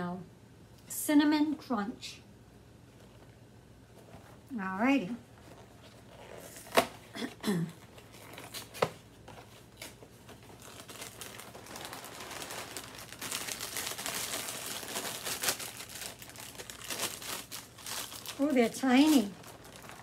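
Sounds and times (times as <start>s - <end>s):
plastic bag crinkling: 7.8s - 20.0s.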